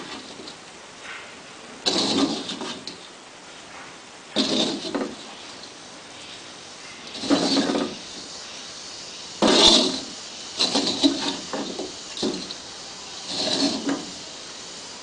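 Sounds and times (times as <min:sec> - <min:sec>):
spatula scraping a wok: 0:01.9 - 0:03.0, 0:04.4 - 0:05.6, 0:07.1 - 0:08.6, 0:09.4 - 0:14.4.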